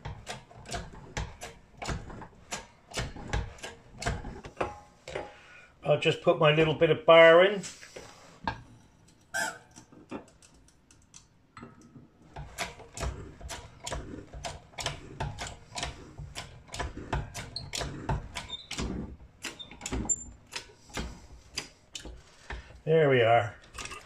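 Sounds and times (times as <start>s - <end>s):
hydraulic press clicks and knocks: 0.0s - 5.3s, 11.6s - 22.8s.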